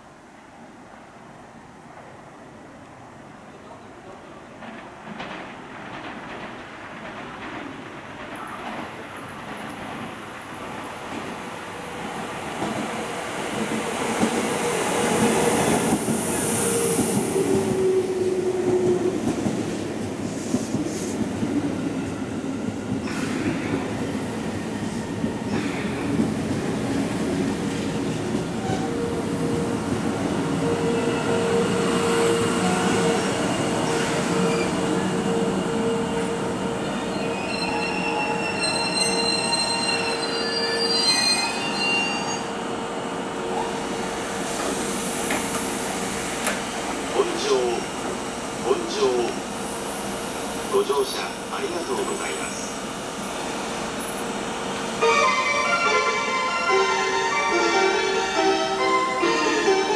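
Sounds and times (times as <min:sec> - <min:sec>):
high squeal of train brakes: 0:23.0 - 0:23.8, 0:24.9 - 0:26.2, 0:30.8 - 0:36.2, 0:36.9 - 0:42.6, 0:49.6 - 0:50.8, 0:51.9 - 0:54.2
electric train running in: 0:41.6 - 0:59.9.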